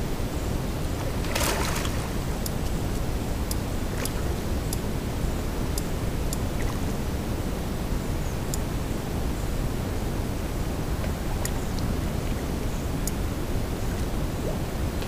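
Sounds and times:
fish splashing: 1.0s - 2.4s.

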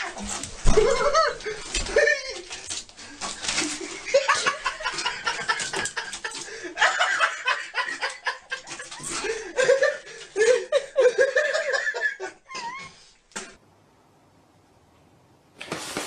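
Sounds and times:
person laughing and snickering: 0.0s - 2.7s, 3.5s - 13.0s.

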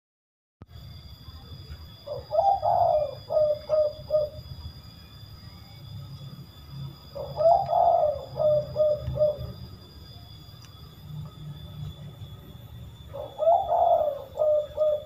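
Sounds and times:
dove cooing: 2.0s - 4.6s, 7.0s - 9.9s, 11.8s - 15.0s.

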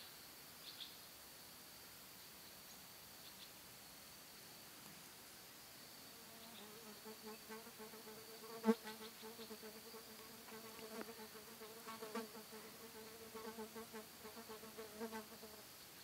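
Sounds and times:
flying insect buzzing: 6.1s - 15.7s.

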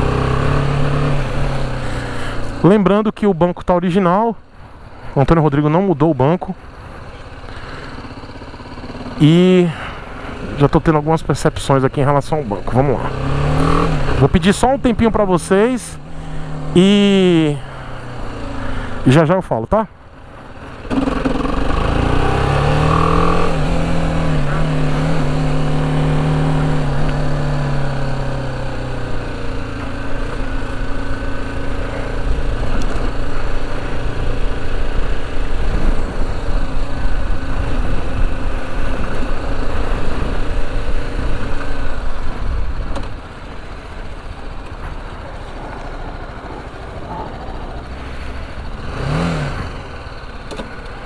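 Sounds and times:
motorcycle engine running: 0.0s - 2.9s, 4.4s - 51.0s.

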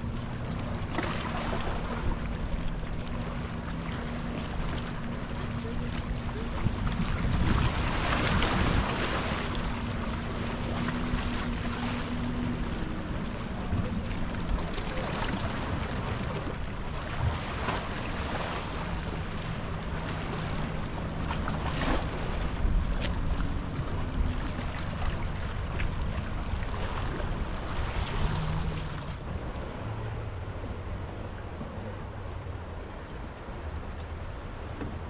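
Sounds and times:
boat motor humming: 0.0s - 35.0s
waves washing against rocks: 0.0s - 35.0s
wind buffeting microphone: 1.4s - 18.3s.

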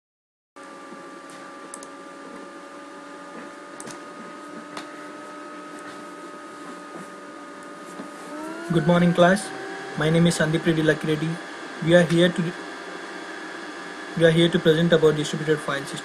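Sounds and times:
fan motor humming: 0.6s - 16.0s
soft clicks: 1.7s - 1.9s.

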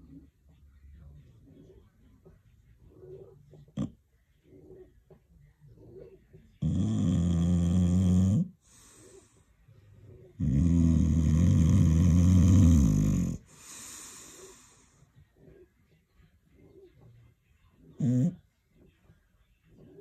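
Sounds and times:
dog snoring: 2.9s - 4.9s, 5.7s - 9.4s, 10.0s - 15.7s, 18.0s - 18.4s
dog breathing: 7.1s - 15.1s.

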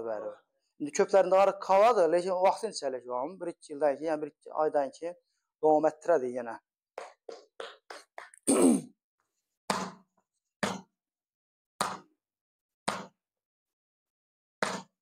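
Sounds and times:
person grunting: 8.5s - 8.9s.

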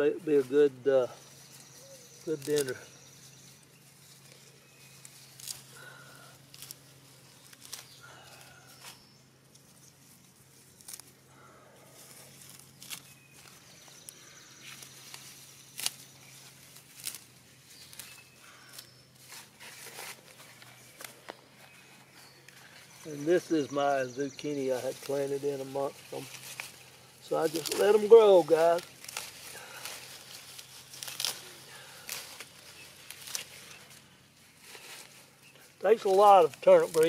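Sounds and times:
leaves rustling: 0.0s - 37.0s
steady low hum: 0.0s - 37.0s
stems snapping: 2.3s - 2.9s, 5.0s - 6.8s, 7.4s - 9.7s, 10.8s - 11.2s, 12.4s - 18.9s, 26.1s - 34.0s, 35.9s - 37.0s.

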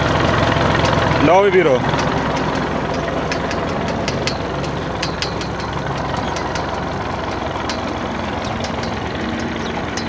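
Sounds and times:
tractor engine running: 0.0s - 10.0s
light ticks: 2.0s - 10.0s.

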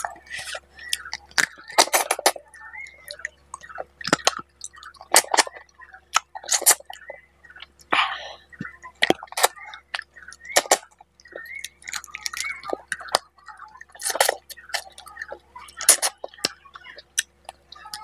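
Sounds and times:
wet chewing and lip smacks: 0.0s - 18.0s
sharp smacking clicks: 9.0s - 13.3s.

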